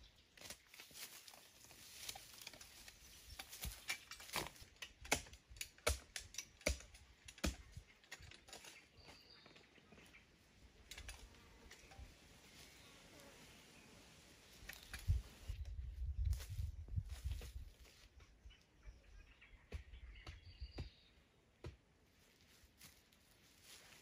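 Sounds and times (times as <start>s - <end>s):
twigs crackling and snapping: 0.3s - 9.2s.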